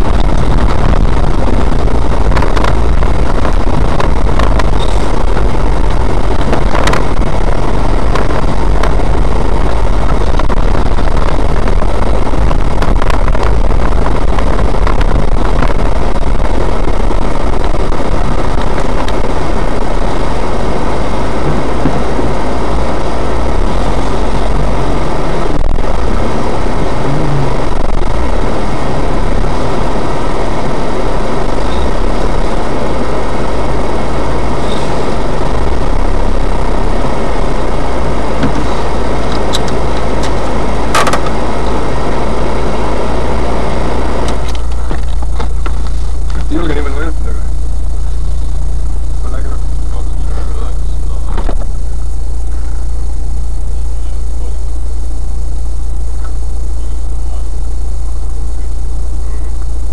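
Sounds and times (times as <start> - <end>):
car engine from inside cabin: 0.0 - 59.9
car knocks and rattles: 21.4 - 22.3, 38.4 - 41.8, 44.3 - 46.5.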